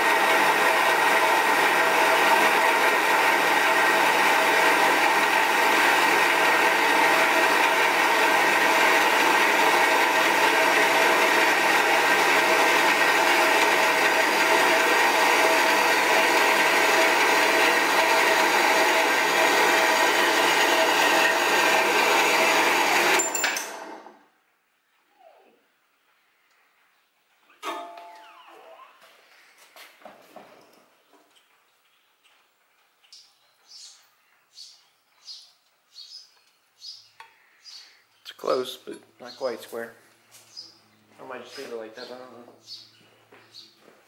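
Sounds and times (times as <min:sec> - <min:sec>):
bandsaw cutting metal: 0:00.0 - 0:24.2.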